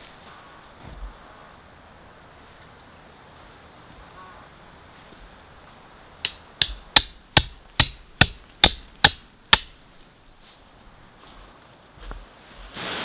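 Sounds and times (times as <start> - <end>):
hatchet striking tent stake: 6.2 - 9.8.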